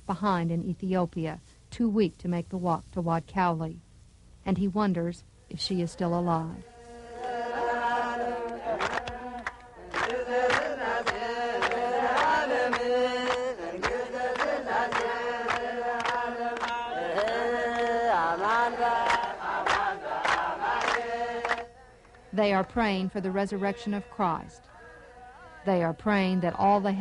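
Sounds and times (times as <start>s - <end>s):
crowd chanting a prayer: 6.6s - 27.0s
hand claps: 8.4s - 22.2s.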